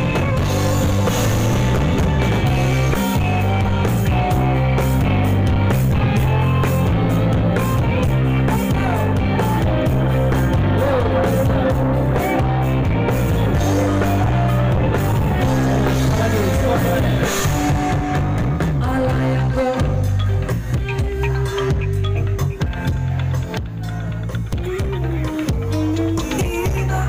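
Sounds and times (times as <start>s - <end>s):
live rock band playing: 0.0s - 27.0s
person singing: 6.1s - 27.0s.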